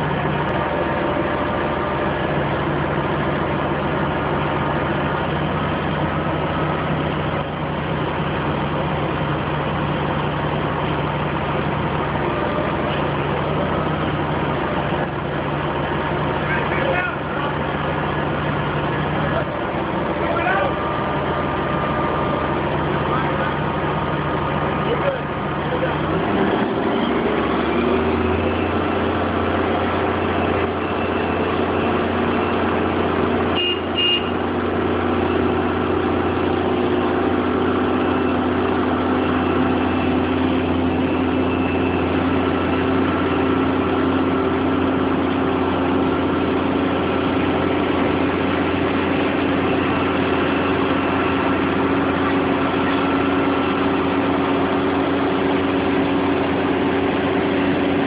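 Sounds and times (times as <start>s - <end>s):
crane engine running under load: 0.0s - 58.0s
short double beep: 33.6s - 34.4s.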